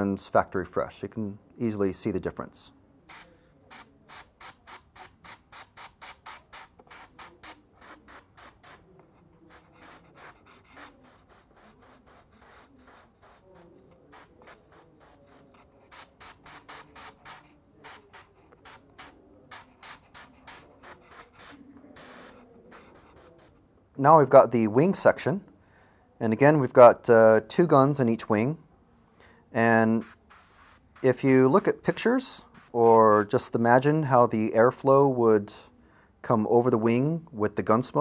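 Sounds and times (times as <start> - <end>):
airbrush spraying in short hisses: 3.1 - 8.9, 9.5 - 23.6, 29.8 - 33.4.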